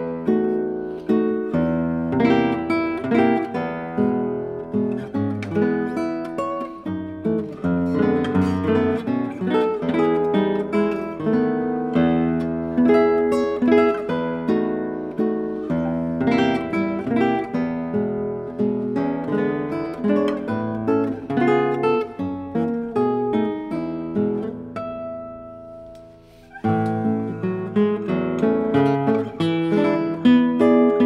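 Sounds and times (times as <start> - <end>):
fingerstyle classical guitar: 0.0 - 31.0.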